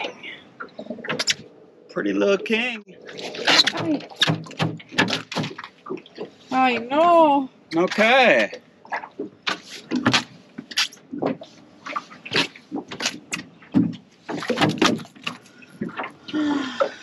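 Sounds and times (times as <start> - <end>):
fish slapping on boat deck: 3.1 - 6.4, 7.9 - 16.2.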